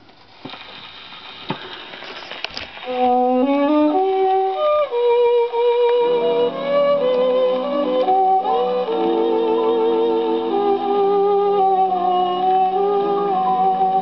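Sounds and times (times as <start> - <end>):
record surface hiss: 0.0 - 14.0
record clicks: 1.6 - 10.7
instrumental melody from record: 2.8 - 14.0.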